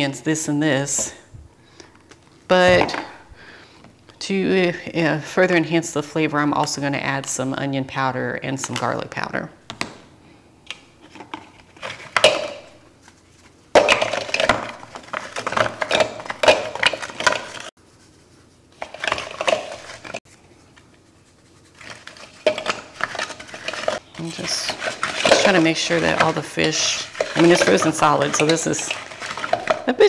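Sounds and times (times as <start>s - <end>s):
frozen fish fillets clattering in bowl: 22.4s - 29.9s.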